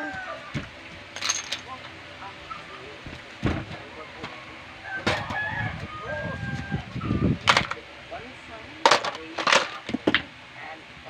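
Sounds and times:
rooster crowing: 0.0s - 0.6s, 4.3s - 7.3s
plastic toys clattering: 1.2s - 1.9s, 7.4s - 7.8s, 8.8s - 10.3s.

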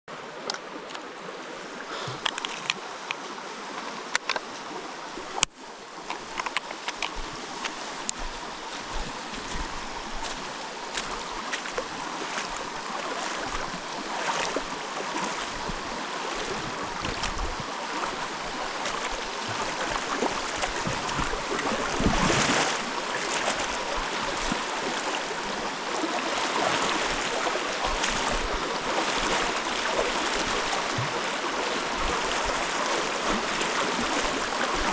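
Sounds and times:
river water rushing: 0.1s - 34.9s
sharp clicks and knocks: 6.1s - 8.2s.

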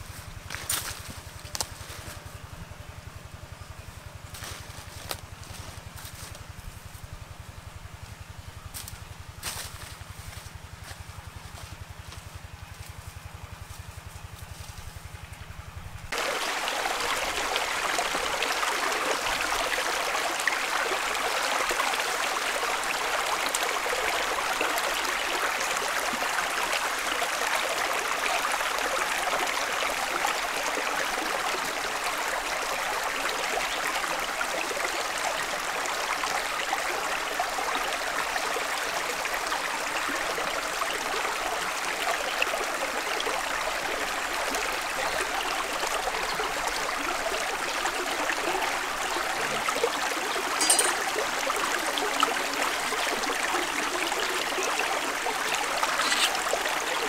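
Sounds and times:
stream running over stones: 16.1s - 57.0s.

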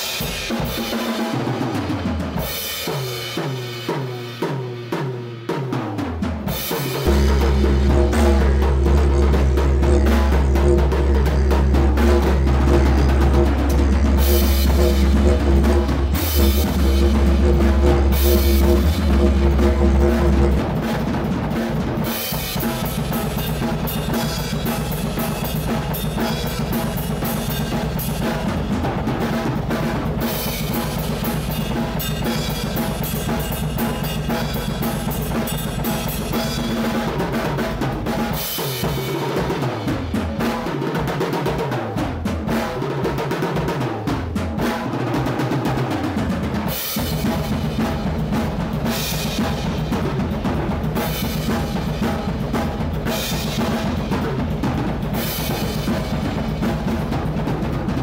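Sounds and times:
drum kit playing: 0.0s - 58.0s
low sliding notes: 7.0s - 21.1s
low steady drone: 7.1s - 20.6s.

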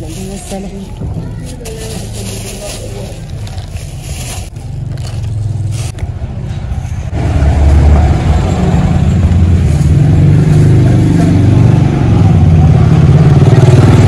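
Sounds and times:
plastic bag rustling: 0.0s - 6.0s
vehicle engine running: 0.0s - 14.0s.

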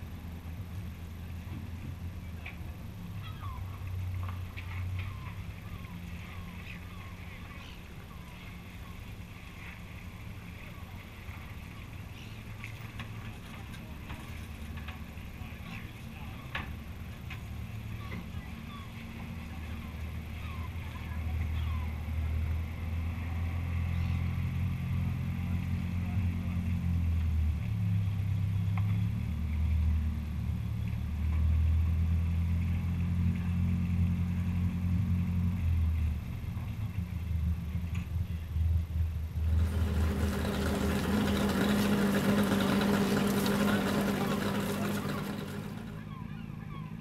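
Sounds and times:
tractor engine revving: 39.3s - 46.3s
hose water spraying: 39.4s - 45.9s.

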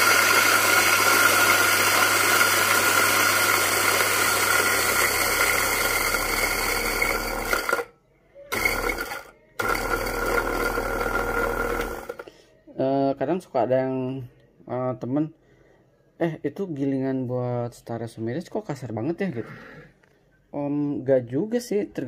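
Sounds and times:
electric coffee grinder running: 0.0s - 7.9s, 8.5s - 12.2s.

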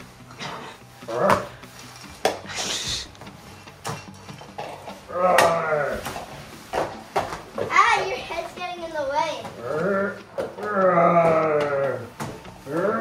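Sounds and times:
person making dinosaur calls: 9.6s - 13.0s.

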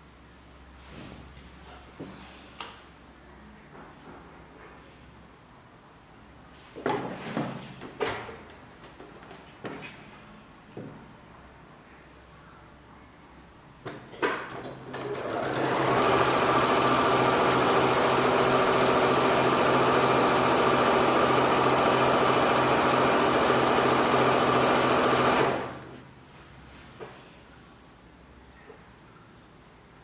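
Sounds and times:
sewing machine stitching: 14.8s - 26.0s
sewing machine clicks: 14.9s - 26.0s.

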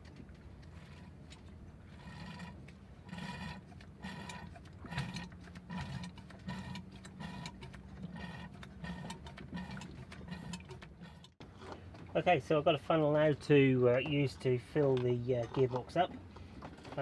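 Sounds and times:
hand pump strokes: 1.9s - 11.4s.

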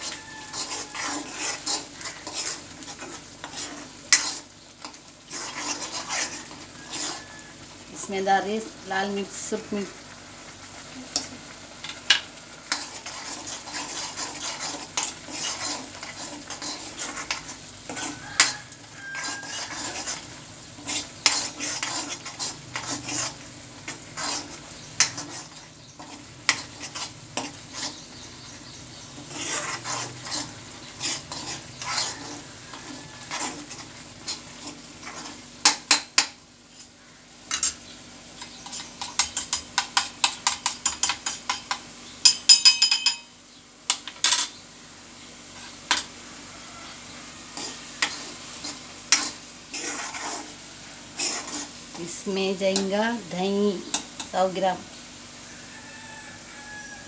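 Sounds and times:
metal spoon scraping a pan: 0.0s - 8.1s, 11.1s - 36.9s, 37.5s - 43.3s, 43.9s - 44.6s, 45.5s - 46.2s, 46.8s - 54.6s
spices sizzling: 0.0s - 57.0s
spoon knocking on pan: 39.0s - 43.3s
spoon clinking on pan: 39.0s - 44.5s.

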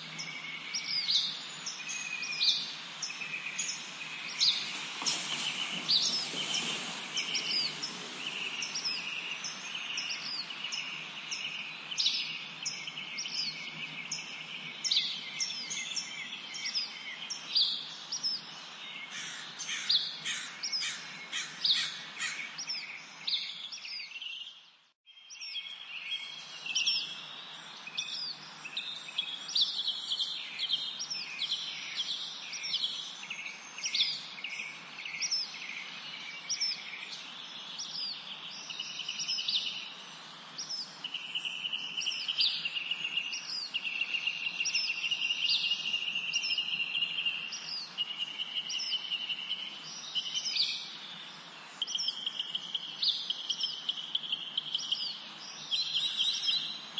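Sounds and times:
small birds chirping: 0.0s - 56.9s
birds trilling: 0.1s - 11.9s, 19.0s - 23.1s.

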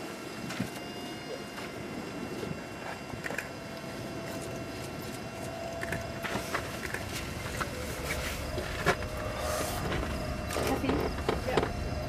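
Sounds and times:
low rumble: 5.7s - 12.0s.

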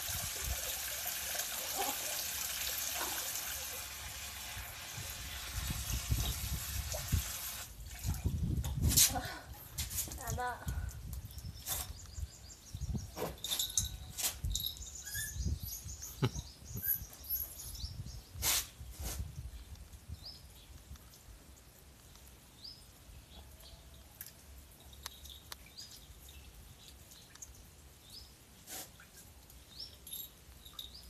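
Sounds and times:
water splashes: 0.0s - 8.6s
puppy high chirps: 15.0s - 15.6s.

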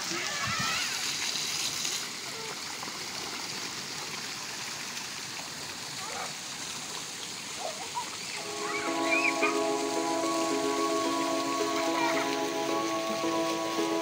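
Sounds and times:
faint children's voices: 0.0s - 1.2s, 7.6s - 14.0s
water fountain jets splashing: 0.0s - 14.0s.

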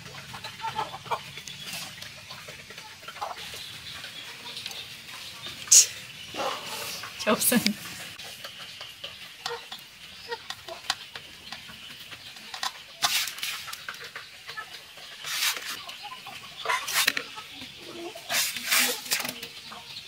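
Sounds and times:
small clicks and scrapes: 8.0s - 16.0s, 16.7s - 17.3s, 18.3s - 19.6s.

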